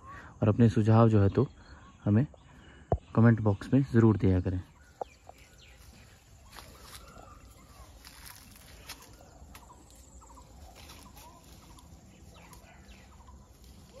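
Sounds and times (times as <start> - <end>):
fowl calling: 5.8 - 14.0.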